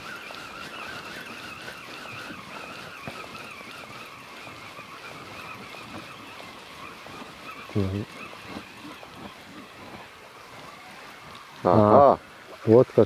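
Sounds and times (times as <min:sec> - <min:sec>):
distant engine running: 0:00.0 - 0:13.0
faint clicks: 0:11.3 - 0:11.5.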